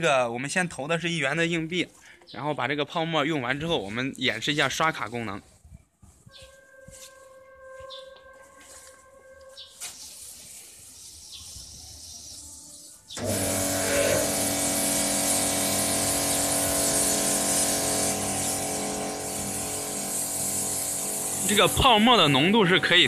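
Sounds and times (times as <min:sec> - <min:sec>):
foam spraying hiss: 0:09.7 - 0:22.6
pressure pump motor hum: 0:13.2 - 0:22.5.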